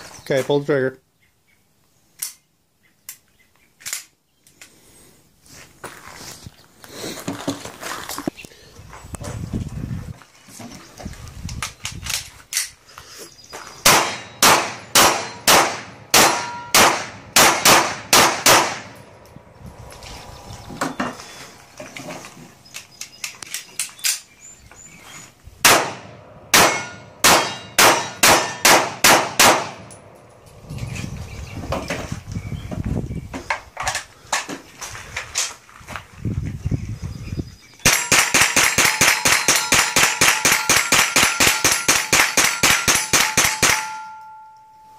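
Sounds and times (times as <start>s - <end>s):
rapid gunshots: 13.9s - 18.9s, 37.9s - 43.8s
steel targets clanging: 37.9s - 44.7s.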